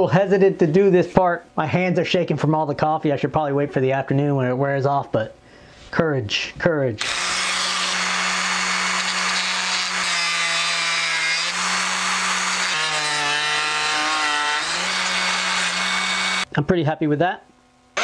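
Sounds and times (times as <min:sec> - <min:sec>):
rotary tool cutting wood whine: 0:07.0 - 0:16.5.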